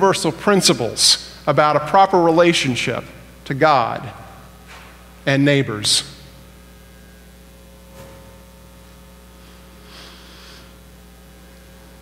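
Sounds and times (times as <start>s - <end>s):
low electrical hum: 0.0s - 12.0s
faint breath: 9.4s - 10.8s.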